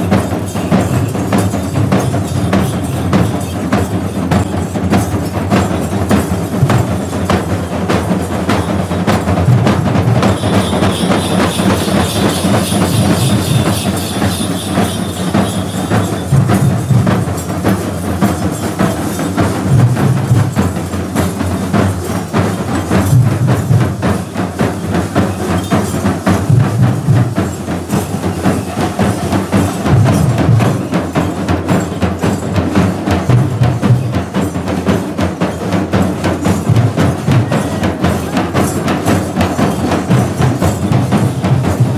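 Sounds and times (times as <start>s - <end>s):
barrel drums beaten fast: 0.0s - 41.9s
heavier low drum beats: 0.0s - 41.9s
high steady ringing: 10.2s - 23.2s.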